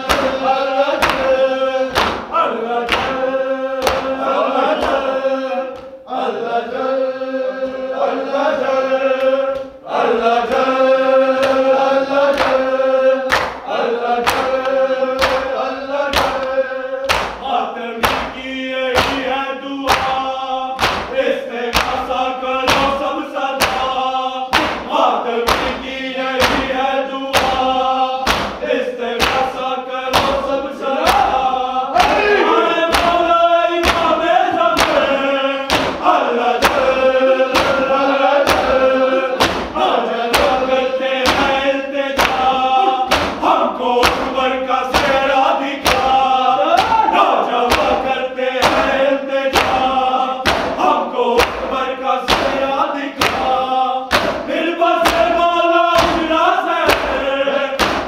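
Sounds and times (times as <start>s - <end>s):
group chanting a lament: 0.0s - 58.0s
chest-beating thumps: 39.4s - 40.6s, 42.2s - 45.2s.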